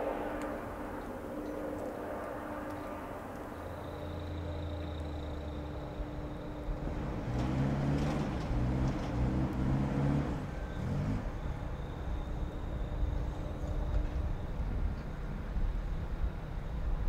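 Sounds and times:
vehicle engine revving: 3.7s - 12.1s.

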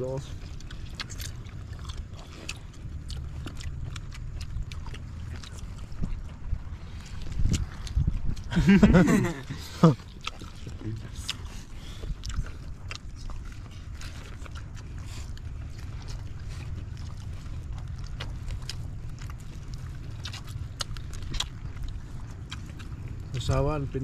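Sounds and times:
steady low rumble: 0.0s - 24.0s
light clicks and taps of eating: 0.3s - 8.9s.

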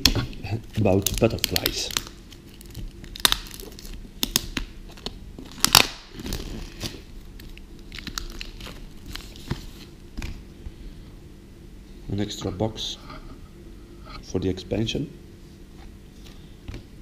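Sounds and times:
plastic shrink-wrap crinkling: 0.0s - 9.9s
plastic wrap ripping: 0.0s - 9.9s.

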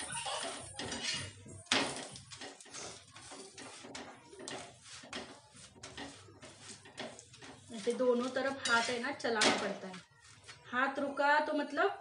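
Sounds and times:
steel kitchenware clinking: 0.0s - 10.1s.

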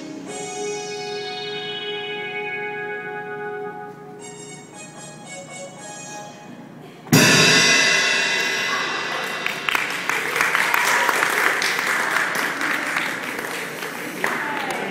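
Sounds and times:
crash cymbals ringing: 7.1s - 11.8s
drum kit hit: 7.1s - 11.9s
audience applause: 9.1s - 14.9s.

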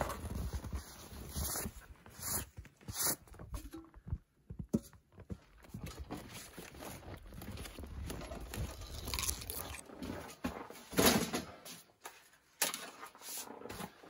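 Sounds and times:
footsteps crunching in snow: 0.0s - 3.5s, 5.2s - 10.9s.

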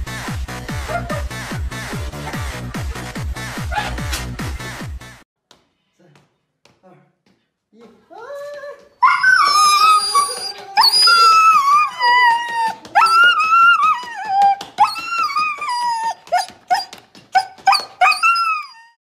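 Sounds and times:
husky yelping: 3.7s - 4.0s, 9.0s - 19.0s
husky yowling and whining: 9.0s - 19.0s.

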